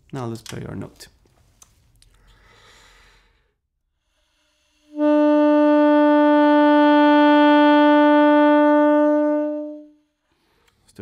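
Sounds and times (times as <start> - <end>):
soft breath: 2.0 - 5.0
saxophone long held note: 4.9 - 10.0.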